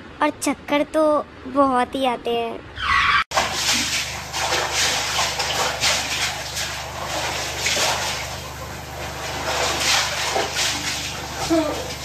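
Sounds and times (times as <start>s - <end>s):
water splashing in a bucket: 3.3s - 12.0s.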